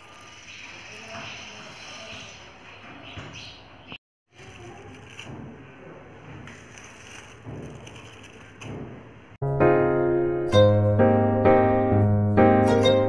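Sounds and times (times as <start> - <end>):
dried petals crackling: 0.0 - 1.6, 4.3 - 9.1
piano music: 9.4 - 13.0.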